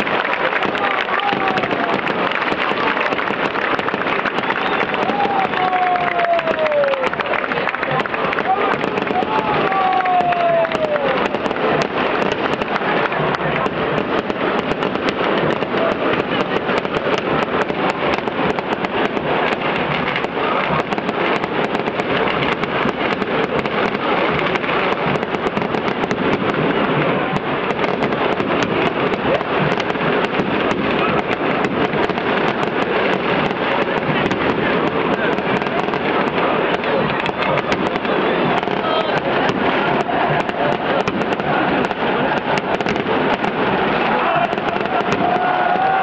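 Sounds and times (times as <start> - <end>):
fireworks crackling: 0.0 - 46.0
stadium crowd roaring: 0.0 - 46.0.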